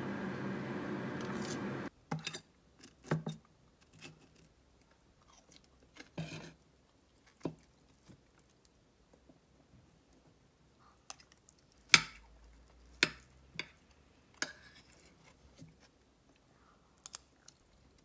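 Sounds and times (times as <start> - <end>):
steady hum: 0.0 - 1.9
quiet eating sounds: 3.4 - 18.0.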